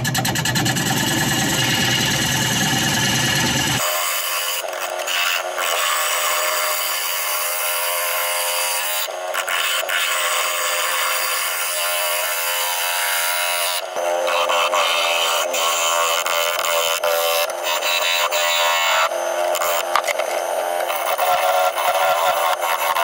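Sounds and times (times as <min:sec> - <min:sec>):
steady hum: 0:00.0 - 0:03.8
lathe gouge cutting wood: 0:00.0 - 0:23.0.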